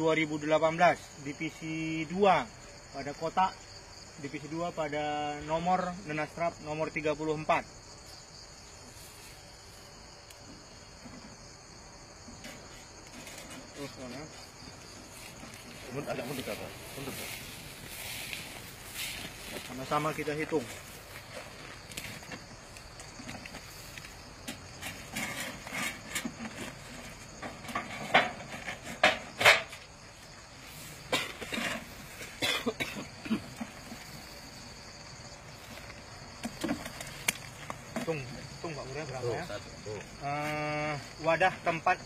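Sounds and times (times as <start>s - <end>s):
high-pitched insect chorus: 0.0s - 42.0s
faint rustles: 12.3s - 28.8s.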